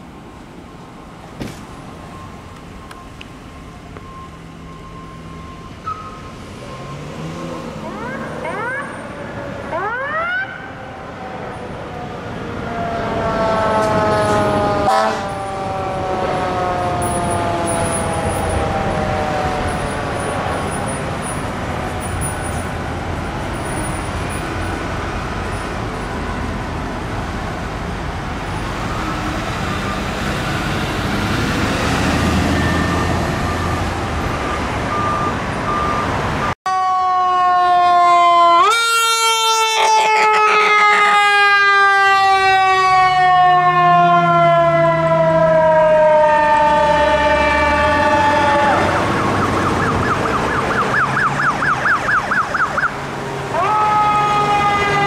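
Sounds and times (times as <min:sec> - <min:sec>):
traffic noise: 0:00.0 - 0:55.0
electronic siren wailing: 0:02.0 - 0:22.6, 0:32.1 - 0:55.0
fire truck warning horn: 0:13.2 - 0:18.6, 0:36.7 - 0:49.2.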